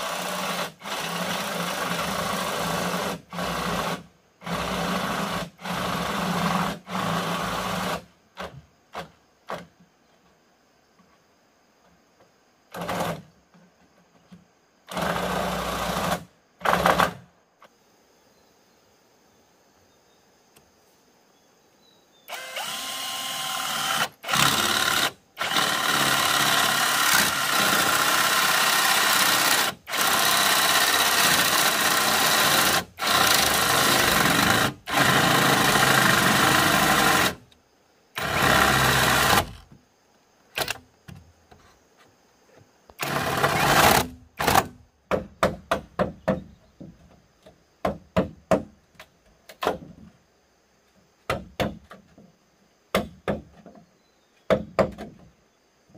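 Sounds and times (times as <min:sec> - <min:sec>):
power tool motor cutting bamboo: 0:00.0 - 0:08.0, 0:14.9 - 0:17.2, 0:22.3 - 0:37.5, 0:38.2 - 0:39.7, 0:43.0 - 0:44.8.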